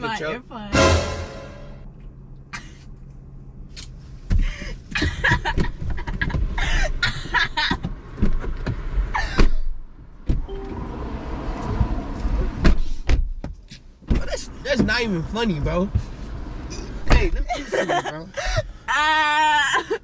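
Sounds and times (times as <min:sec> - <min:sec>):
knocks and rustling in a car: 0:04.2 - 0:06.6, 0:07.2 - 0:10.5, 0:11.8 - 0:16.2.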